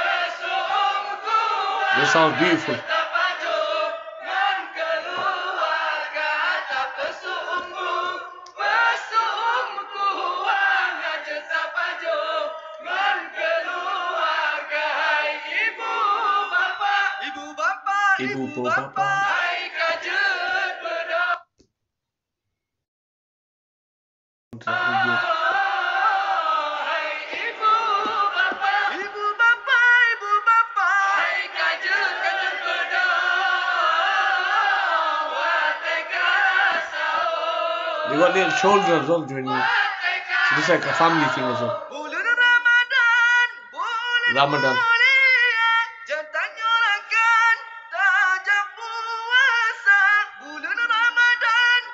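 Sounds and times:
men singing into a microphone: 0.0 - 21.4, 24.6 - 51.9.

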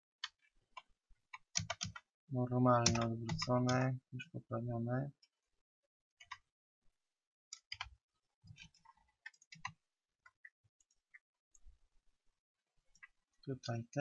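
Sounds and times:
keyboard and mouse clicking: 0.2 - 2.1, 2.7 - 3.8, 6.2 - 6.5, 7.6 - 7.9.

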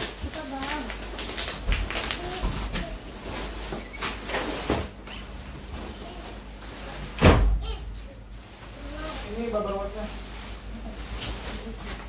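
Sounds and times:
loud thump: 7.2 - 7.7.

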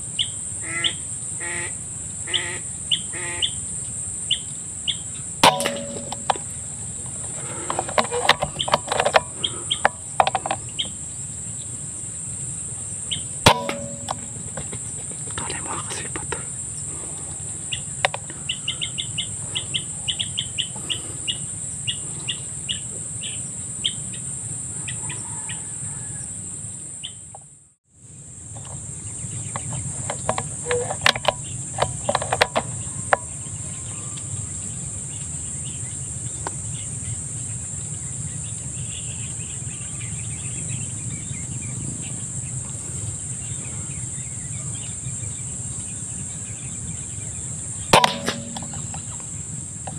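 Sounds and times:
low background hum: 0.0 - 25.0, 28.1 - 49.9
sharp clicks and knocks: 5.4 - 10.9, 13.5 - 16.4, 18.0 - 18.4, 29.5 - 33.3, 47.9 - 49.9
bird clucking calls: 7.2 - 10.9, 15.4 - 22.8.

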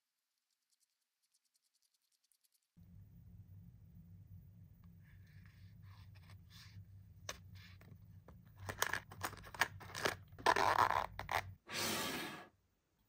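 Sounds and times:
low steady hum: 2.8 - 11.6.

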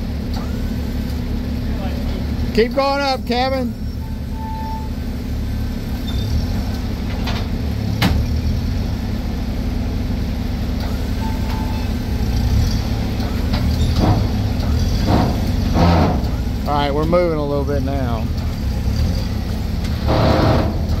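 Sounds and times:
forklift engine running: 0.0 - 21.0.

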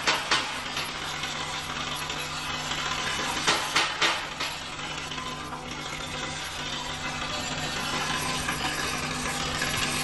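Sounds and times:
screws rattling on metal track: 0.0 - 10.0
vibrator drive humming: 0.0 - 10.0.

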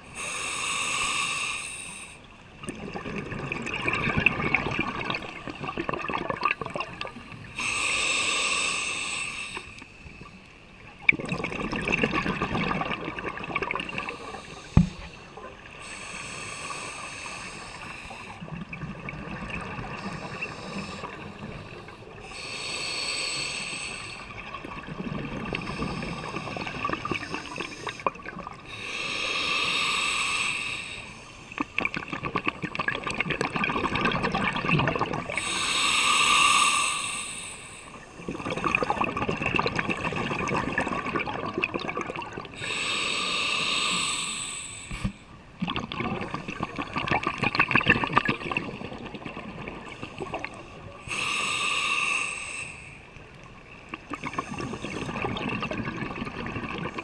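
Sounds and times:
regulator breathing underwater: 0.0 - 2.3, 6.8 - 10.4, 13.5 - 18.5, 19.6 - 24.5, 25.3 - 32.0, 34.2 - 39.3, 42.1 - 48.9, 49.7 - 57.0
bubbling exhale: 11.1 - 53.0, 53.9 - 57.0.

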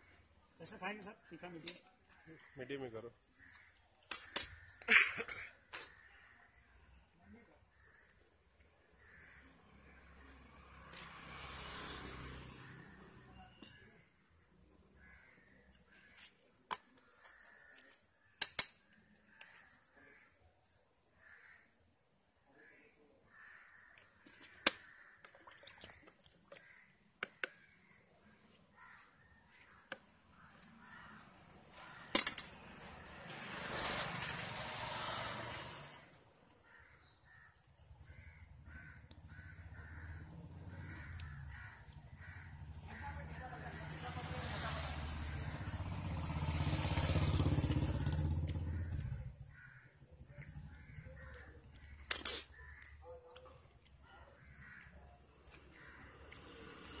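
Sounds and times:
crows cawing: 2.1 - 6.9, 7.7 - 14.0, 14.9 - 33.0, 36.6 - 57.0
sharp clicks: 18.4 - 19.0, 50.3 - 54.0.

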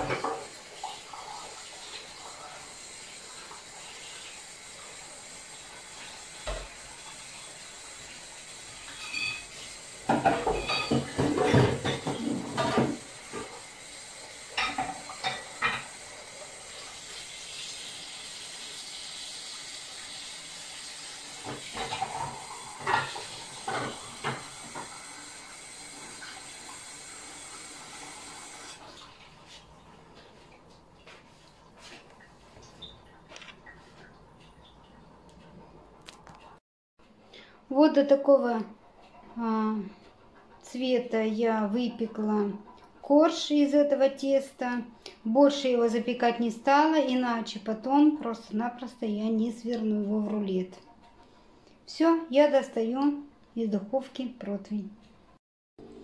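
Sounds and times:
dishes and utensils clattering: 0.0 - 1.4, 8.8 - 13.6, 14.5 - 16.0, 21.4 - 25.0.

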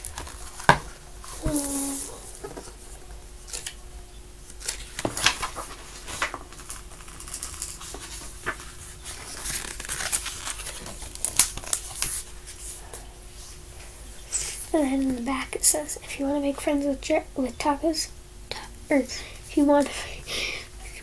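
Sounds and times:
book pages turning: 4.5 - 12.6.

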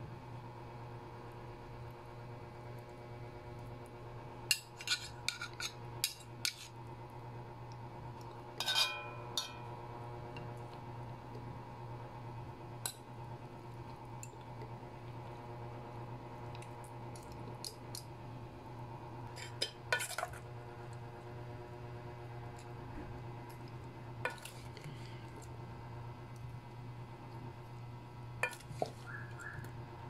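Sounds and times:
metal utensils clinking on pots: 8.6 - 9.7.

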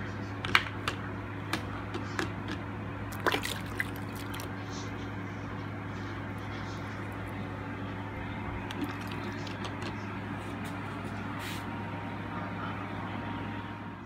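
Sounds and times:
steady low hum: 0.0 - 14.0
liquid trickling: 3.1 - 4.6, 8.7 - 9.6.

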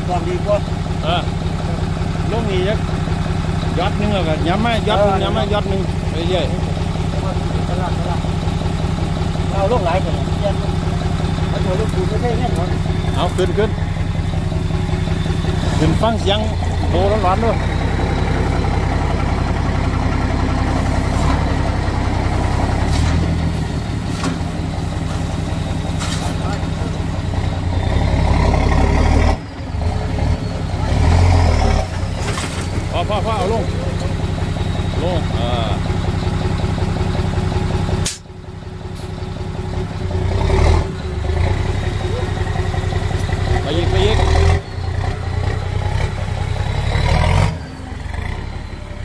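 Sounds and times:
diesel truck engine running: 0.0 - 49.0
sharp click: 38.0 - 38.3.

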